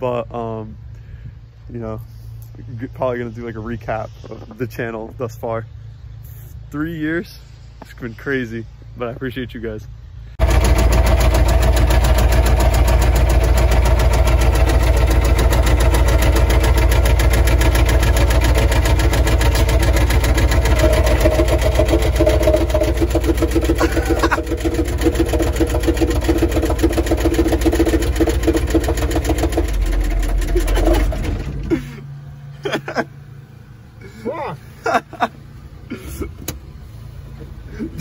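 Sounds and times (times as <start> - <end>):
diesel engine running: 8.6 - 38.0
engine rod knock clatter: 10.4 - 31.6.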